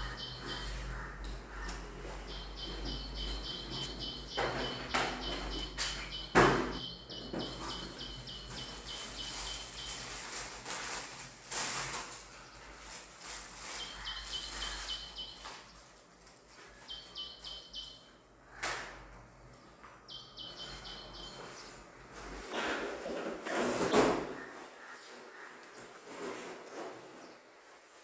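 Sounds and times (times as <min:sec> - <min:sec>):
small bird chirping: 0:00.0 - 0:10.5, 0:13.5 - 0:15.9, 0:16.7 - 0:18.2, 0:20.1 - 0:21.9.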